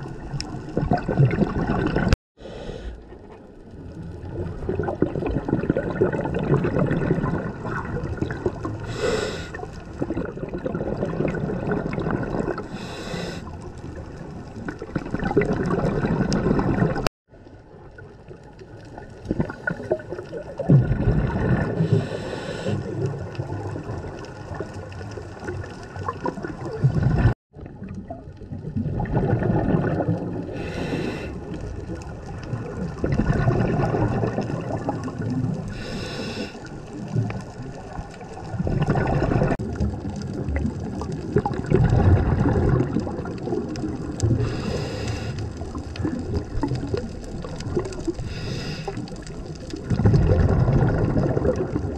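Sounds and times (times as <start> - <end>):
bubbling exhalations underwater: 0.0 - 2.2, 4.2 - 17.1, 19.2 - 51.9
hissing regulator inhalations: 8.9 - 9.6, 12.7 - 13.5, 21.9 - 22.8, 30.6 - 31.4, 35.7 - 36.7, 44.4 - 45.4, 48.2 - 49.1.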